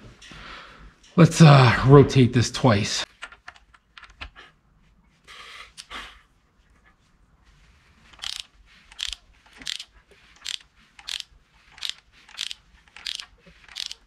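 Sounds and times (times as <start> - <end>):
ratchet wrench clicking: 8.2 - 14.0.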